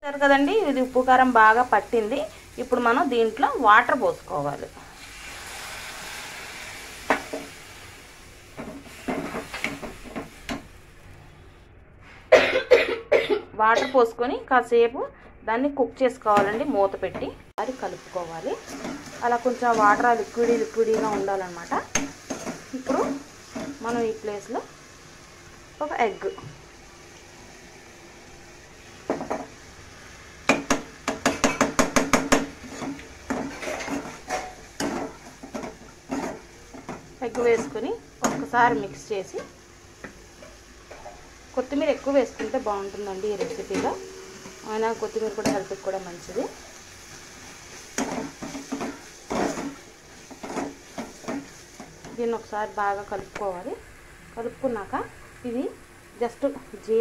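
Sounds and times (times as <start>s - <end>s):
water hissing in a hot pan: 0.4s - 10.7s, 17.6s - 57.0s
person coughing: 12.3s - 14.1s
ladle scraping and knocking pan: 18.6s - 21.3s, 30.5s - 41.3s, 43.3s - 45.7s, 47.7s - 52.2s.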